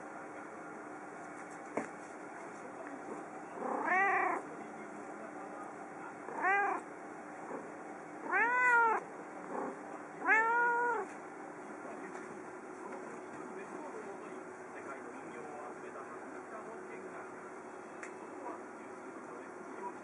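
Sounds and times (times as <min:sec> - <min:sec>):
cat meowing: 0:03.6 - 0:04.4, 0:06.3 - 0:06.9, 0:08.2 - 0:09.0, 0:10.2 - 0:11.1.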